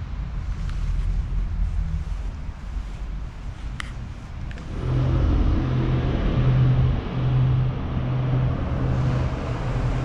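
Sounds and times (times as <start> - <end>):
vehicle engine running: 4.5 - 10.0.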